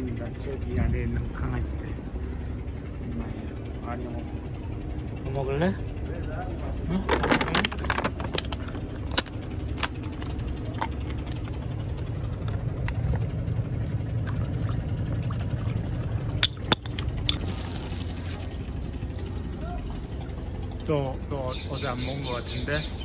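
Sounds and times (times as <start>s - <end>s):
low rumble: 0.0s - 21.3s
plastic bag crinkling: 17.4s - 18.5s.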